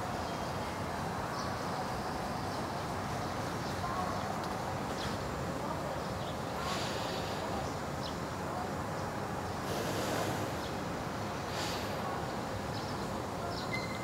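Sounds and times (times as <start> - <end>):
outdoor background noise: 0.0 - 14.0
soft hissing: 6.6 - 7.8, 9.5 - 13.0
faint short chirps: 13.6 - 14.0.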